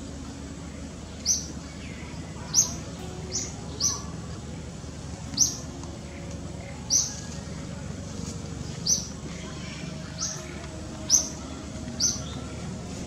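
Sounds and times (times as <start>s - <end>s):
bird chirping: 0.0s - 13.0s
low outdoor background: 0.0s - 13.0s.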